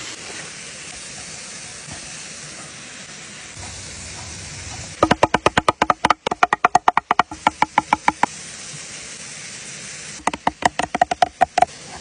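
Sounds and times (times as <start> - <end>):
small waterfall rushing: 0.0 - 12.0
cleaver chopping on wooden block: 5.0 - 8.3, 10.3 - 11.7.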